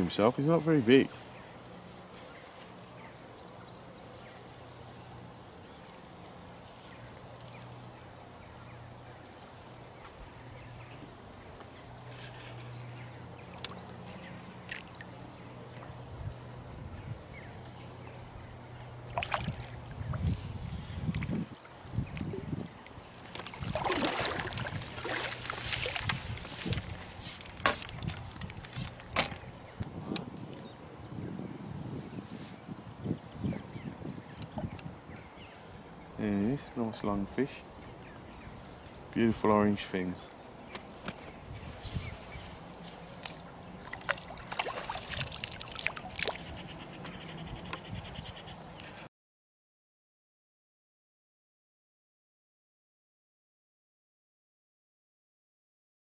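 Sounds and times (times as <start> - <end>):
fish splashing at the surface: 19.1 - 20.0, 23.2 - 26.8, 43.8 - 46.5
fishing tackle clicks and knocks: 25.5 - 29.5.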